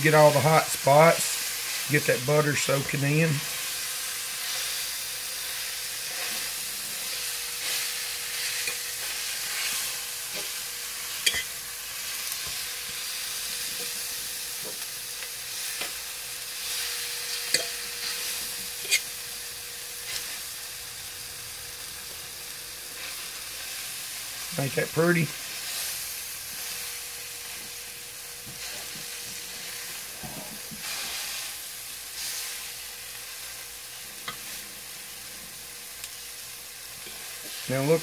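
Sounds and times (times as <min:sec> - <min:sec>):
steak sizzling in butter: 0:00.0 - 0:38.0
utensil clicking and scraping pan: 0:18.8 - 0:19.1.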